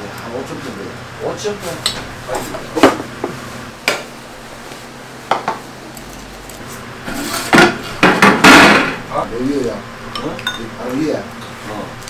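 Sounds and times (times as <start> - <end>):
kitchenware clinking and knocking: 7.2 - 9.0.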